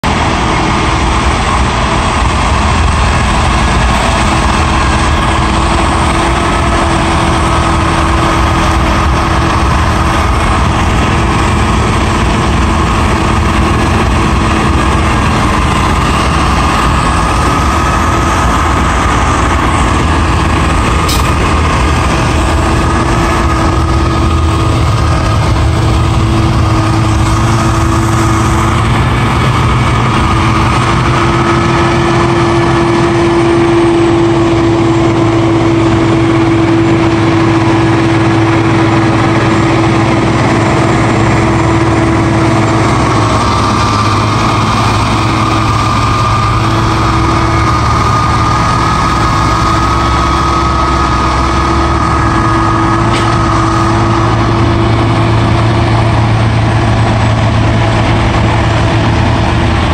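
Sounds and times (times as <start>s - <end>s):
diesel engine under load: 0.0s - 59.9s
snowblower rotor whine: 0.0s - 59.9s.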